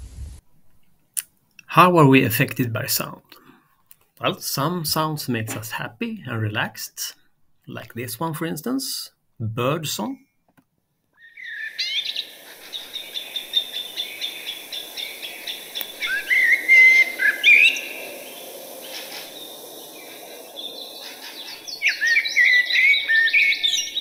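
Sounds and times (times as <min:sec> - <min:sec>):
steady low background noise: 0:00.0 - 0:10.2, 0:11.4 - 0:24.0
bird chirps and trills: 0:11.2 - 0:24.0.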